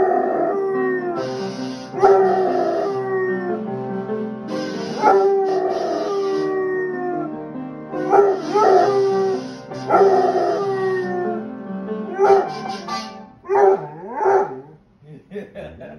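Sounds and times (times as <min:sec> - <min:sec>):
dog howling: 0:00.0 - 0:01.2, 0:02.0 - 0:03.6, 0:05.0 - 0:07.3, 0:08.0 - 0:11.4, 0:13.5 - 0:14.8
piano notes and chords: 0:00.0 - 0:14.5.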